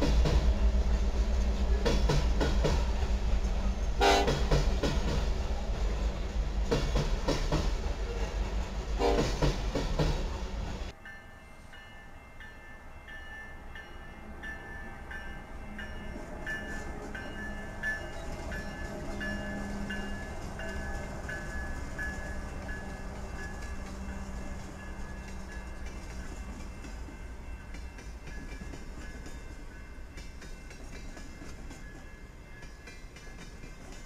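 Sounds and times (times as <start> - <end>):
freight train wheel rumble: 0.0 - 11.0, 13.7 - 34.0
crossing bell ringing: 10.9 - 34.0.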